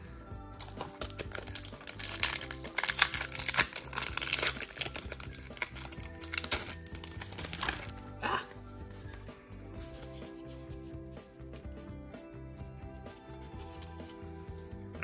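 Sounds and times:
background music: 0:00.0 - 0:15.0
foil wrapper crinkling: 0:00.6 - 0:08.0.

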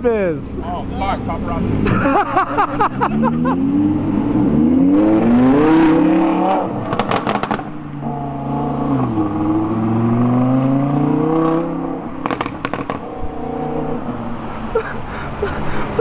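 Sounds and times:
car engine accelerating: 0:01.2 - 0:14.7
exhaust crackles and pops: 0:06.8 - 0:07.7, 0:12.2 - 0:13.1.

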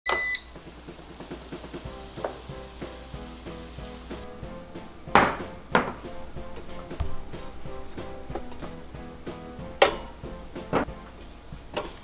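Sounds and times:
short loud electronic beep: 0:00.1 - 0:00.6
food sizzling in air fryer basket: 0:00.1 - 0:05.8
soft background music: 0:00.1 - 0:12.0.

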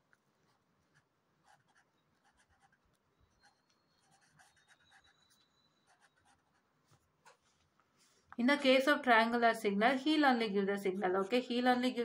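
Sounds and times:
pen scratching on paper: 0:00.5 - 0:07.4.

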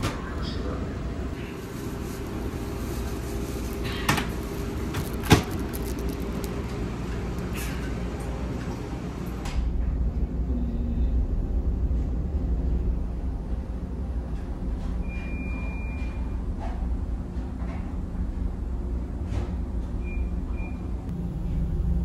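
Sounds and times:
ferry engines droning: 0:20.8 - 0:22.0.

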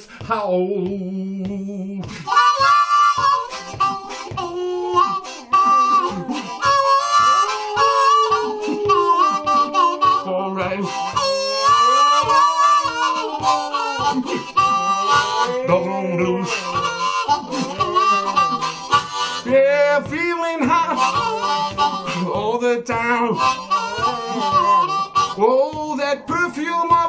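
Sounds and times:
harmonica playing blues: 0:02.0 - 0:27.0
dog howling: 0:04.4 - 0:19.0.

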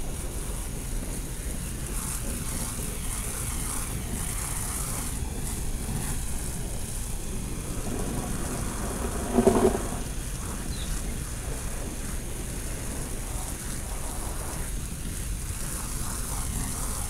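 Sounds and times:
high hiss: 0:00.0 - 0:17.0
wind buffeting microphone: 0:00.0 - 0:17.0
low rumble: 0:07.0 - 0:10.5.

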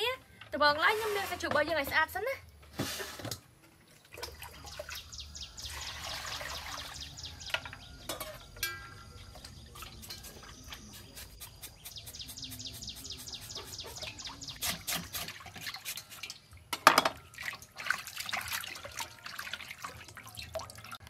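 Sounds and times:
water splashing in a steel bowl: 0:03.9 - 0:10.9, 0:13.9 - 0:21.0.

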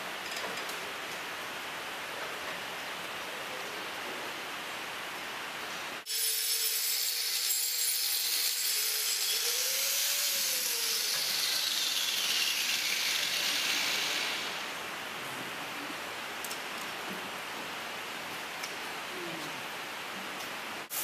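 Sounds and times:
power tool grinding hoof: 0:06.1 - 0:14.6.

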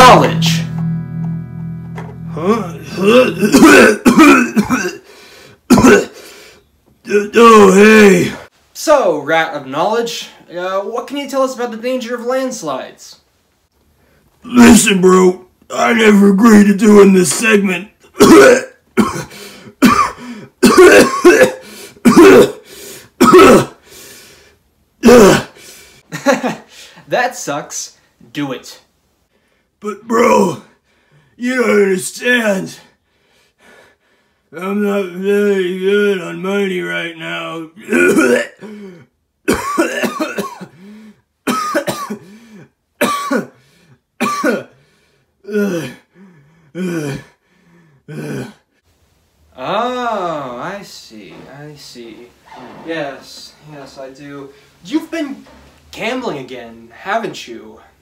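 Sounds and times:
man coughing and clearing throat: 0:03.4 - 0:05.0, 0:05.7 - 0:06.2, 0:18.1 - 0:22.6, 0:23.2 - 0:23.8, 0:37.8 - 0:38.8, 0:39.5 - 0:40.8, 0:41.4 - 0:42.3, 0:43.0 - 0:43.6, 0:44.2 - 0:44.7.

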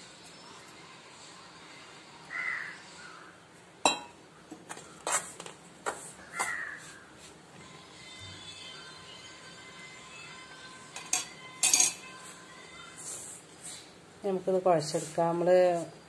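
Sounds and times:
clinks against metal bowl: 0:03.8 - 0:04.2, 0:11.0 - 0:12.1.

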